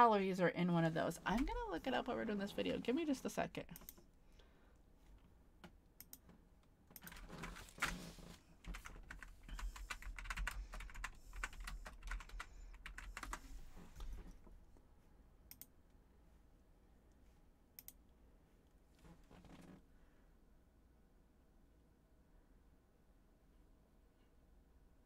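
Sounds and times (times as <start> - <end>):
typing on keyboard: 7.0 - 8.0, 8.6 - 13.5.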